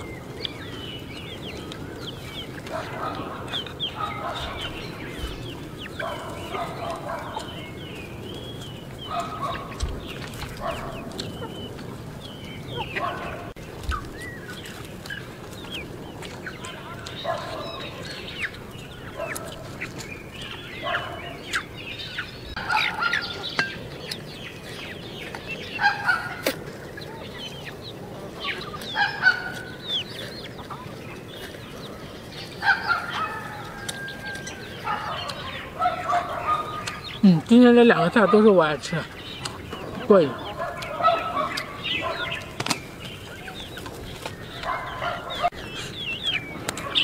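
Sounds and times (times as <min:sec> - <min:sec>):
chickens clucking: 0:00.0 - 0:47.0.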